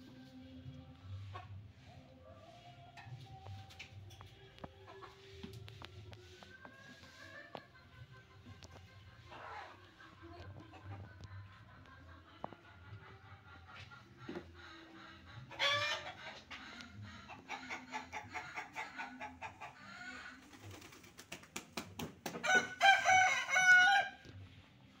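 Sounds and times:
rooster crowing: 0:22.4 - 0:24.2.

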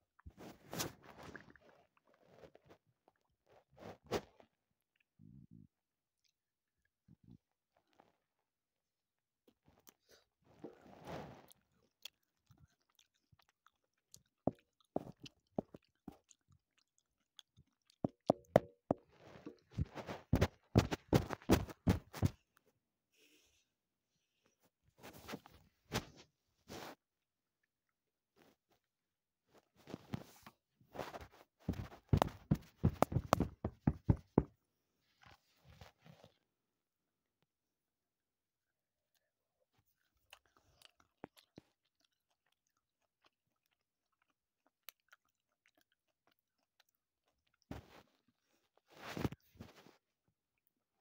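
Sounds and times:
chewing crunches: 0:11.4 - 0:18.5, 0:40.0 - 0:48.8
rubbing and handling sounds: 0:18.5 - 0:22.4, 0:29.6 - 0:34.6, 0:48.8 - 0:50.0.

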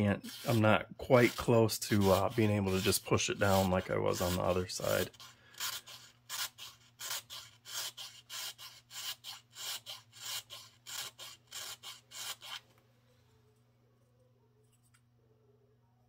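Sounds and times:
needle file rasping: 0:00.0 - 0:12.6.

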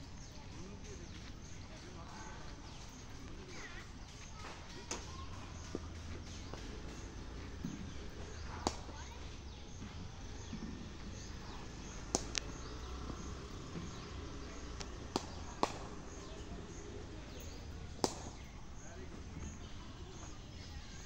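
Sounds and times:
sharp clicks: 0:12.0 - 0:12.6.

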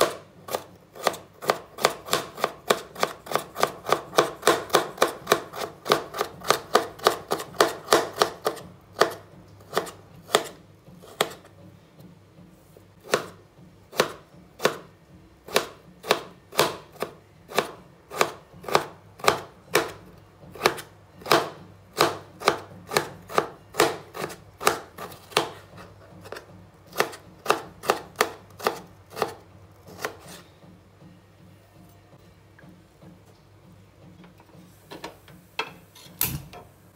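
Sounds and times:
knife chopping on wooden board: 0:00.0 - 0:11.5, 0:13.0 - 0:14.9, 0:15.5 - 0:30.5.

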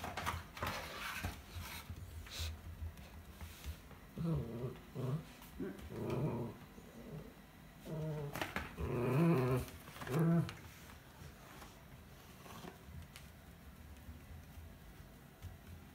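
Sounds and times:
dog play-growling: 0:04.1 - 0:10.8.

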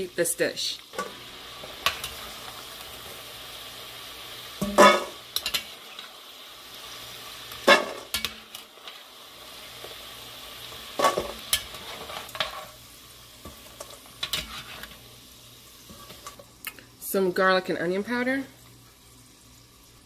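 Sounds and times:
fries sizzling in hot oil: 0:00.0 - 0:20.0
tongs and spoon scraping pot: 0:13.7 - 0:15.0.

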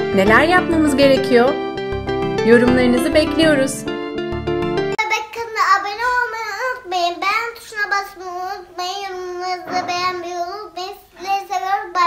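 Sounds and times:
girl talking: 0:05.0 - 0:12.0.

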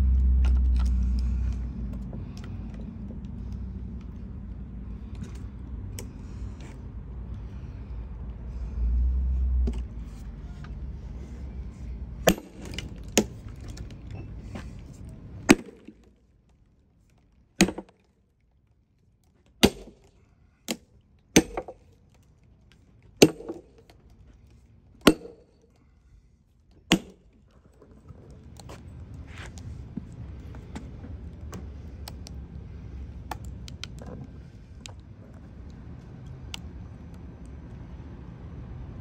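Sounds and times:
low background rumble: 0:00.0 - 0:39.0
hammer striking steel wedge: 0:12.3 - 0:13.4, 0:15.5 - 0:15.9, 0:17.6 - 0:17.9, 0:19.6 - 0:20.1, 0:21.4 - 0:21.8, 0:23.2 - 0:23.8, 0:25.0 - 0:25.6, 0:26.9 - 0:27.2.

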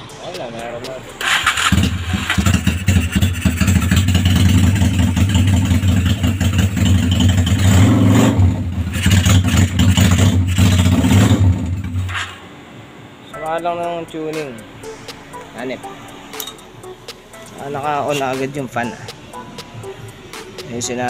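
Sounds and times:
motorcycle engine idling: 0:01.2 - 0:12.1.

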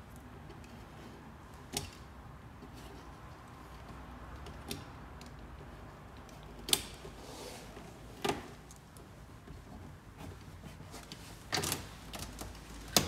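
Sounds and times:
soft rustle: 0:05.6 - 0:13.0.

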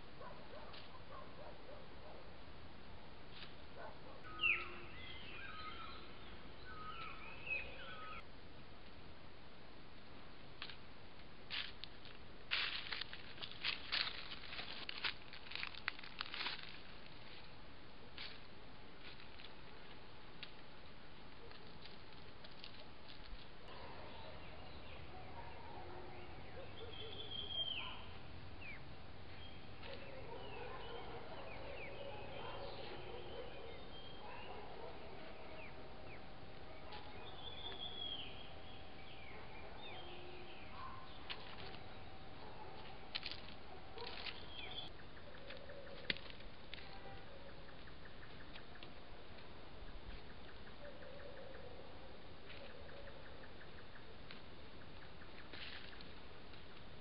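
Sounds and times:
steady background hiss: 0:00.0 - 0:46.8
wild birds calling and whistling: 0:03.8 - 0:08.2, 0:23.7 - 0:49.0, 0:49.8 - 0:56.1.

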